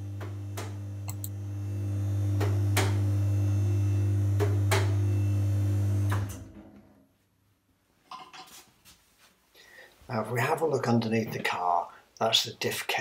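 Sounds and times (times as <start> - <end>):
car lift motor humming: 0.0 - 6.7
sharp clicks: 1.1 - 1.3.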